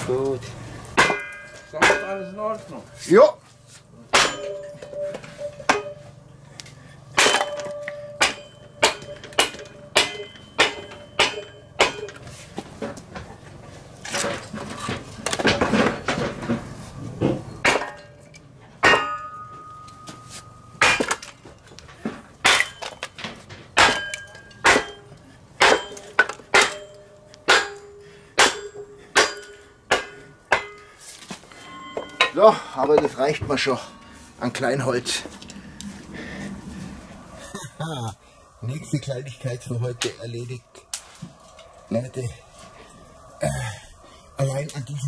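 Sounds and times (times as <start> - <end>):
hammer striking metal splitter: 1.0 - 2.4, 4.1 - 6.1, 7.1 - 12.2, 18.8 - 20.2, 20.8 - 21.3, 22.4 - 23.1, 23.8 - 30.9
rough noise: 31.0 - 45.0.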